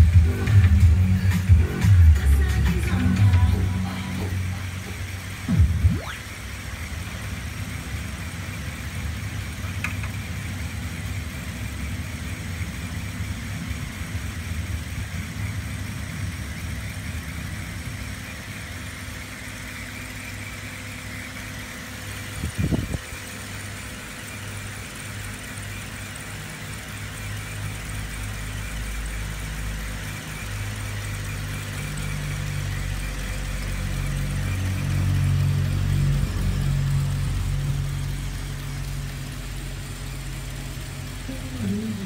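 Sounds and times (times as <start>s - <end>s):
electric motors whirring: 15.9s - 42.0s.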